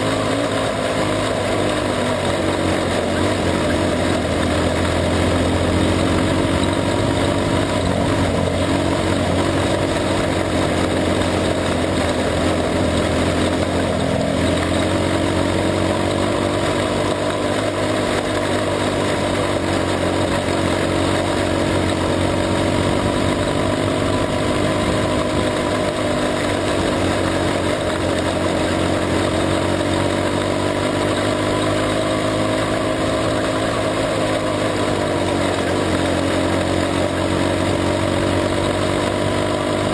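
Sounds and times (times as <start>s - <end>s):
race car engine running hard: 0.0s - 39.9s
steady rushing noise: 0.0s - 39.9s.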